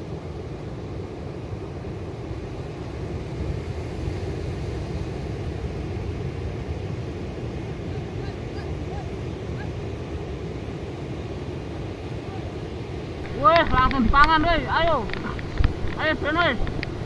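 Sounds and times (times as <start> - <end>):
wind buffeting microphone: 3.1 - 17.0
surf breaking: 12.4 - 17.0.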